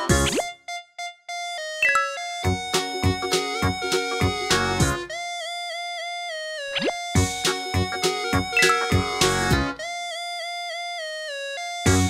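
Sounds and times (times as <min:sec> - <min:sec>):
upbeat background music: 0:00.0 - 0:00.8, 0:01.8 - 0:05.2, 0:06.7 - 0:09.9, 0:11.8 - 0:12.0.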